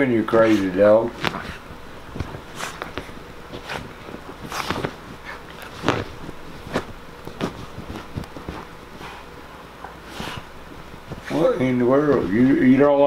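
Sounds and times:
fabric rustling: 0.0 - 13.0
soft thumps of paws: 0.3 - 9.4.

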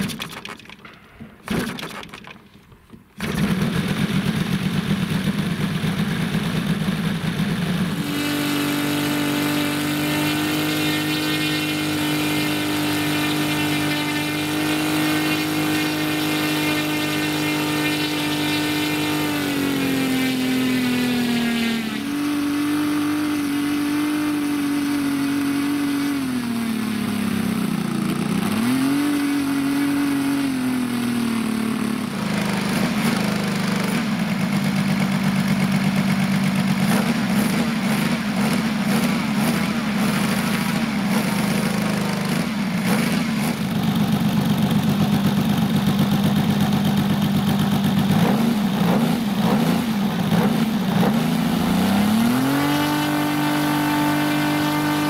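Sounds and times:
radial engine running: 3.2 - 28.6.

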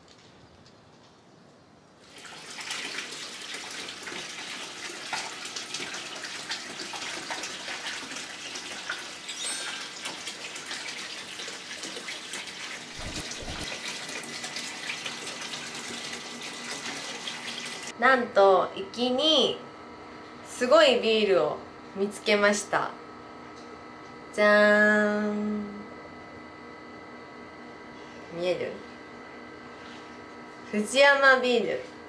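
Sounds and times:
tap water running into bathtub: 2.0 - 17.9.

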